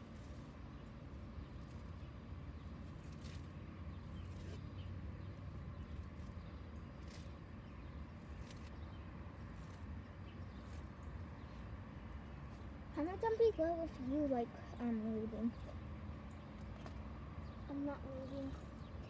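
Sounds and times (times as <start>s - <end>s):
steady low rumble: 0.0s - 19.0s
weed stems tearing: 2.7s - 4.6s, 5.4s - 8.8s.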